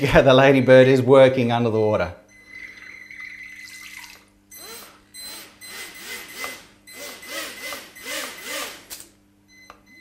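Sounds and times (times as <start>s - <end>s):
small motors whining: 4.6s - 9.0s.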